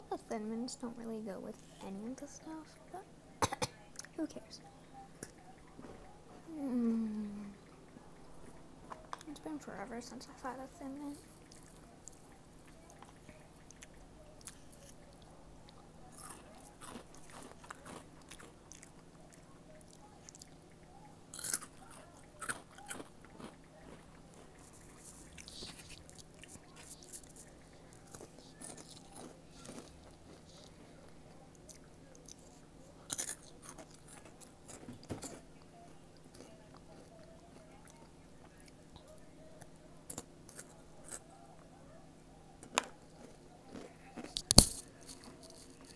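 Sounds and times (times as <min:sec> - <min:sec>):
chewing crunchy snacks: 0:11.2 - 0:41.8, 0:42.6 - 0:45.9.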